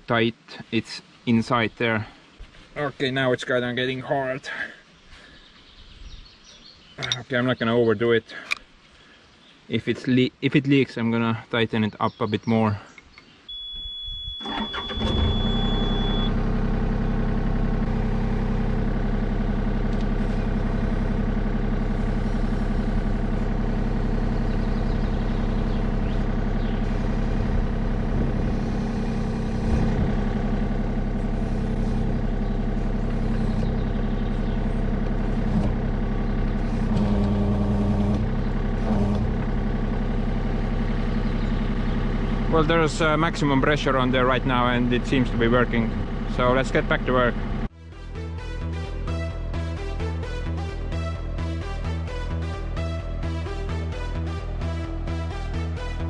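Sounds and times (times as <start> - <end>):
diesel engine starting and running: 13.5 - 56.0
steady high beep: 15.2 - 16.4.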